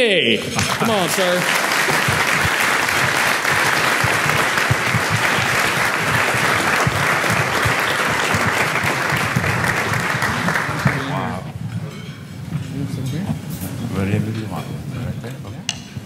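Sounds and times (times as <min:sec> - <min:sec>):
audience applauding: 0:00.4 - 0:11.5.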